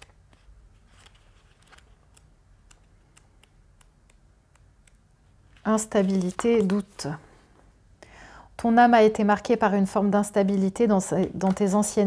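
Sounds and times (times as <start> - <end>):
paper pages flicking: 0.0 - 4.1.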